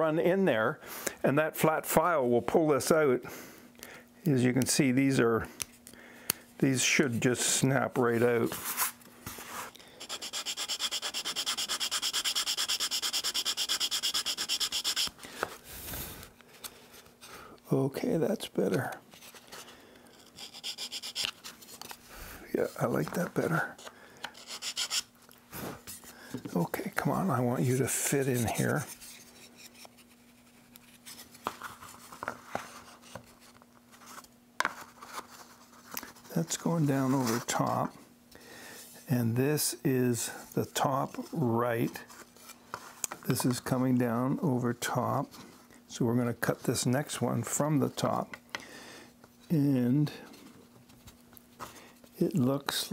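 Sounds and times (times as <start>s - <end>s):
faint steady hum: 0.0s - 52.9s
file rasping on wood: 10.0s - 15.1s, 20.4s - 21.3s, 24.4s - 25.0s.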